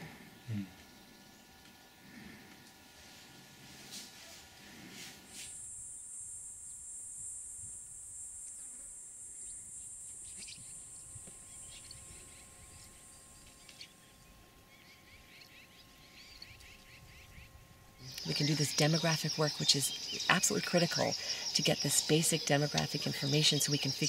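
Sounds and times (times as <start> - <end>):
faint outdoor ambience: 0.0 - 24.0
high-pitched insect drone: 5.3 - 24.0.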